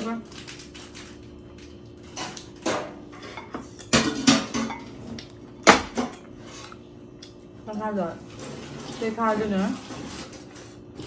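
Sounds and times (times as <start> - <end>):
plates and cutlery clinking: 2.1 - 5.2.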